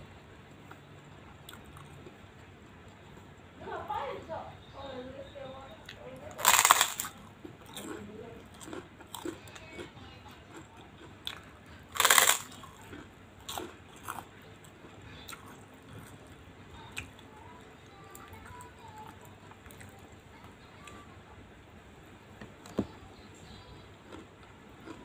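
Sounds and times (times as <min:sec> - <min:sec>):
quieter chewing crunches: 0:00.6 - 0:02.5, 0:05.8 - 0:09.9, 0:10.5 - 0:17.2, 0:24.1 - 0:25.0
loud crunches biting cracker: 0:06.4 - 0:08.0, 0:11.9 - 0:14.2.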